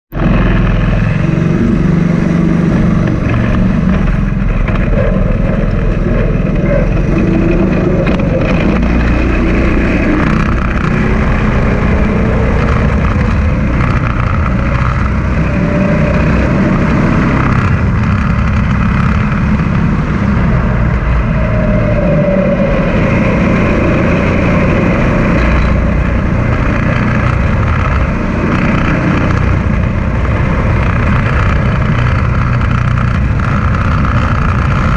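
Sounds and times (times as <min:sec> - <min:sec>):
go-kart engine running: 0:00.1 - 0:34.9.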